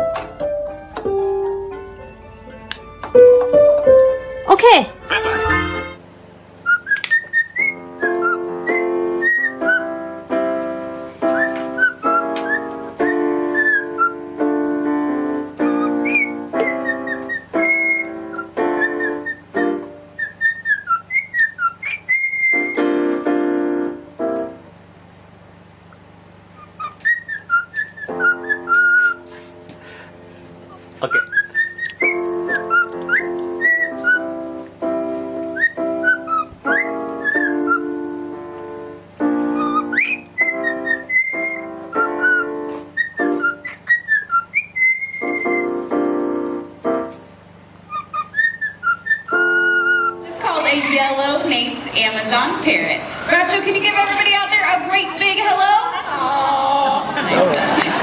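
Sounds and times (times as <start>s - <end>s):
keyboard playing chords: 0.0s - 6.6s, 7.8s - 20.2s, 22.6s - 24.9s, 28.1s - 43.8s, 45.2s - 47.8s, 49.3s - 58.0s
cockatiel whistling a tune: 6.6s - 10.0s, 11.2s - 14.2s, 15.6s - 19.6s, 20.2s - 22.9s, 26.6s - 29.3s, 31.1s - 34.4s, 35.5s - 38.0s, 39.5s - 45.9s, 47.9s - 50.2s.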